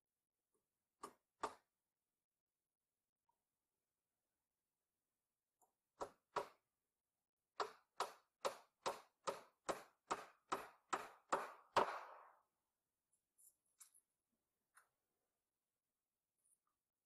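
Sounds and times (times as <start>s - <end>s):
hammer striking nail into wood: 1.0s - 1.7s, 6.0s - 6.7s, 7.6s - 12.4s.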